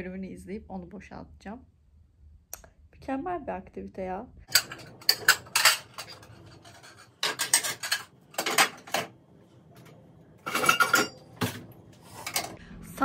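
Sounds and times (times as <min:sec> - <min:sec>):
dishes and cutlery clinking: 0:04.5 - 0:09.2, 0:09.8 - 0:12.6.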